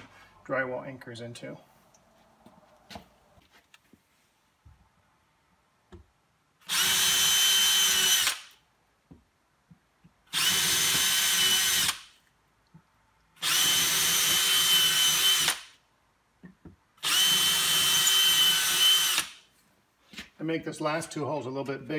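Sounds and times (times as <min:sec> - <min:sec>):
cordless drill boring into drywall: 0:06.6 - 0:08.6, 0:10.3 - 0:12.2, 0:13.4 - 0:15.8, 0:17.0 - 0:19.5.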